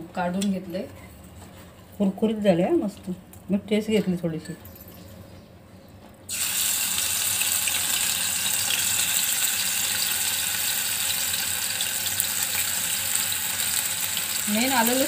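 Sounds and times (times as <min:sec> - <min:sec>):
paste sizzling in hot oil: 0:06.3 - 0:15.0.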